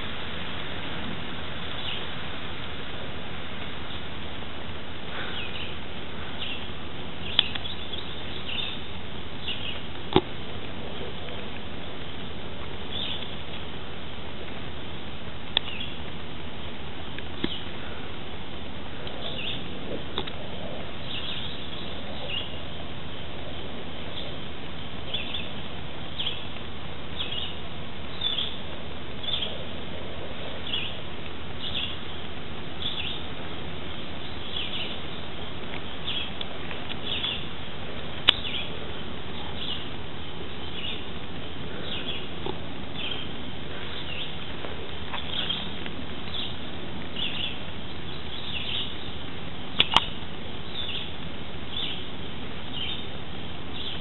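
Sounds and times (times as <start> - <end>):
outdoor ambience hiss: 0.0 - 54.0
bird chirping: 1.6 - 2.2, 5.1 - 9.9, 12.9 - 13.5, 15.6 - 16.1, 19.0 - 29.7, 30.4 - 33.3, 33.9 - 37.6, 38.3 - 44.5, 45.1 - 54.0
sharp clicks: 49.8 - 50.2.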